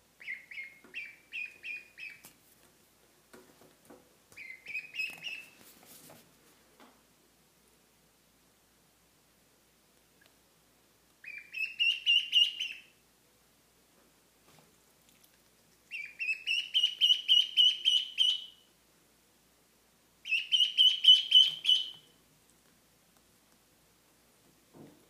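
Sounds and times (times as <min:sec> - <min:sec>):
duckling peeping: 0:00.2 - 0:02.3, 0:04.3 - 0:05.6, 0:11.2 - 0:13.0, 0:15.8 - 0:18.7, 0:20.2 - 0:22.2.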